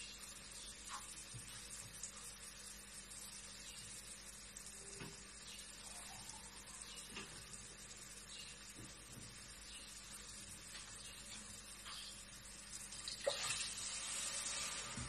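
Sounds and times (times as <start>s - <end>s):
pasta sauce sizzling in a pot: 0.0s - 15.0s.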